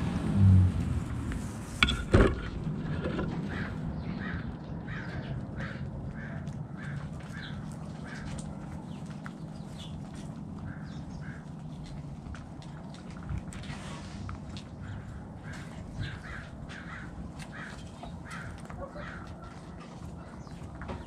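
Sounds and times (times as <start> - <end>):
hens clucking: 15.0 - 21.0.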